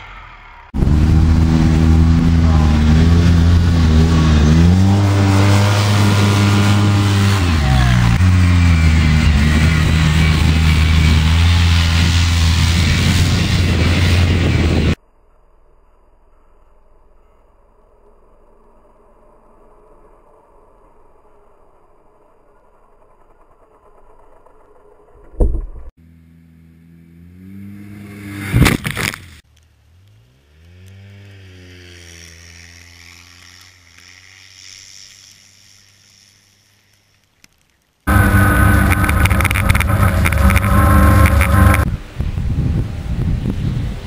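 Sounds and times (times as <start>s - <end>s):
engine revving: 0.0s - 15.0s, 18.0s - 36.7s, 38.1s - 44.0s
sharp thump: 25.3s - 25.9s.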